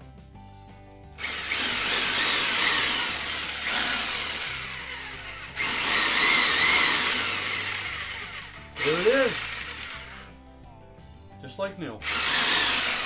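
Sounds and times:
jigsaw motor running: 1.2 - 10.3, 12.0 - 13.0.

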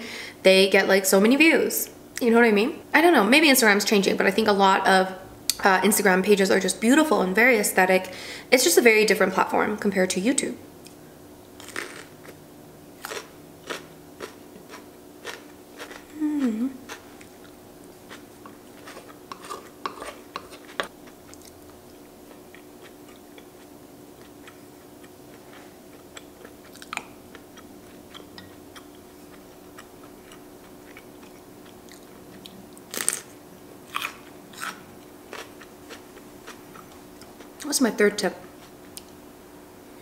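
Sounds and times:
faint steady hum: 0.0 - 40.0
crunchy chewing: 11.6 - 12.4, 13.0 - 37.6.

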